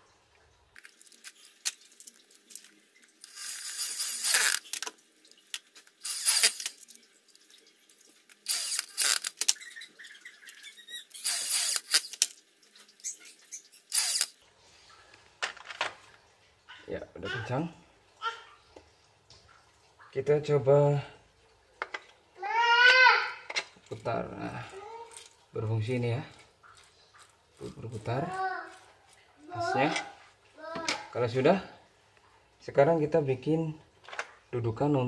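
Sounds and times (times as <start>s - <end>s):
power drill running: 6.0s - 6.7s, 8.5s - 9.4s, 11.2s - 12.2s, 13.9s - 14.3s.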